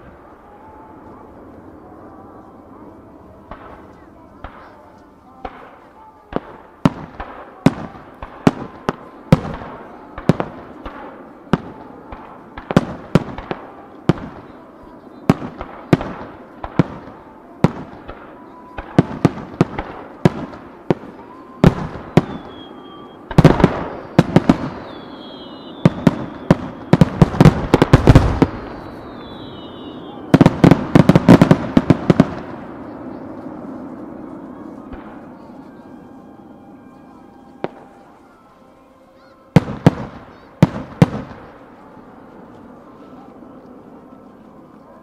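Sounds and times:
high firework whistle: 20.9 - 31.5.

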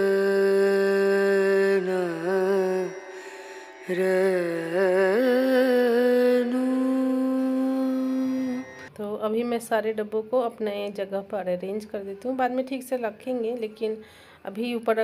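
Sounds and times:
person singing long ornamented notes: 0.0 - 8.9.

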